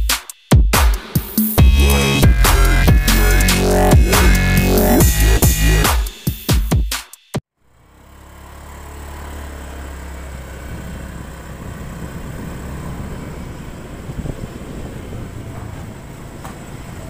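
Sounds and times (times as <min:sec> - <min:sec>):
motorcycle engine running: 0:01.6 - 0:05.9, 0:07.7 - 0:17.0.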